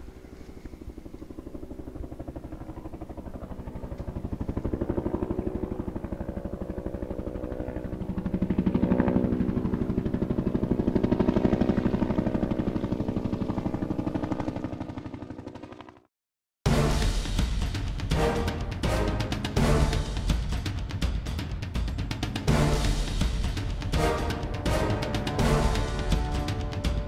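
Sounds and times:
motor throbbing: 0:22.4 - 0:27.0.

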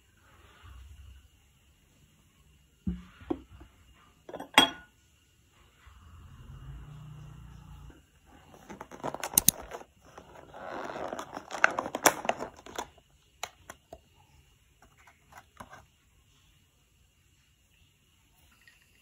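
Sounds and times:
plastic box crinkling: 0:08.4 - 0:13.0.

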